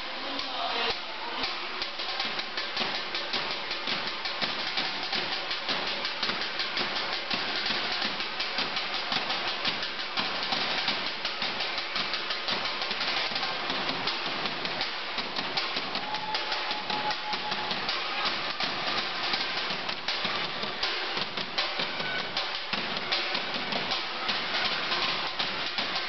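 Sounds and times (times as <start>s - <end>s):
marching drumline playing: 1.5s - 26.0s.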